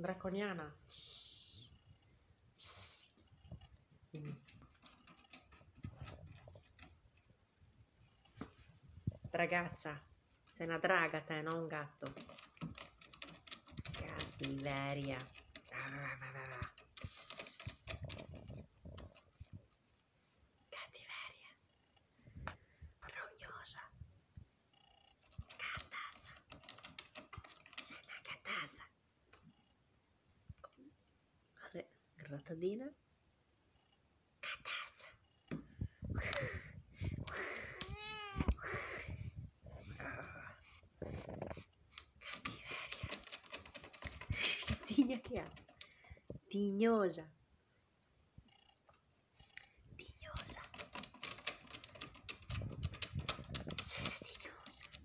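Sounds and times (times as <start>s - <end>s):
cat claws scratching rope post: 4.4s - 7.3s, 11.5s - 19.7s, 25.2s - 28.0s, 41.8s - 46.0s, 50.2s - 55.0s
cat hissing: 17.0s - 18.1s.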